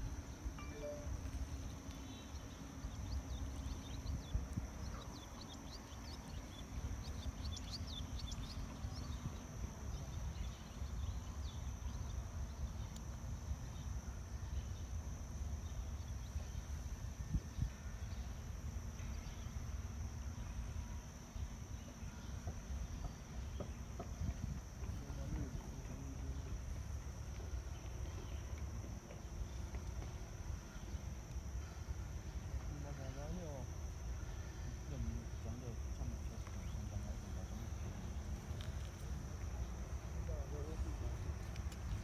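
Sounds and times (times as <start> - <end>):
thin high hiss: 0.6 - 2.3
faint high chirps: 0.6 - 9.4.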